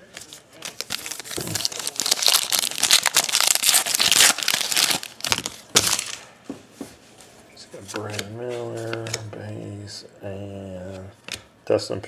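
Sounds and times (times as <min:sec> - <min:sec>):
card pack wrapper tearing: 0:00.6 - 0:06.2.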